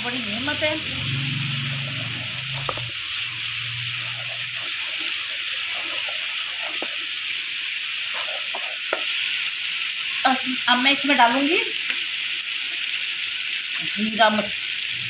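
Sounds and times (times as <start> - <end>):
low hum: 0.0 - 6.3
sauce sizzling and bubbling in pot: 0.0 - 15.0.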